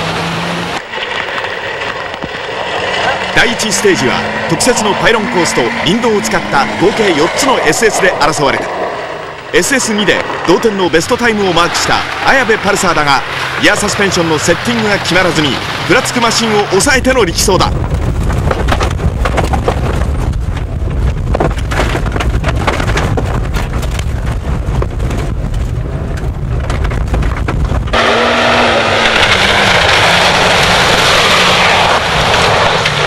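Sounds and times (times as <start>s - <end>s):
rally car engine running hard: 0.0s - 7.6s, 11.2s - 33.0s
stones rattling against car body: 17.7s - 28.0s
car driving off spraying gravel: 27.9s - 33.0s.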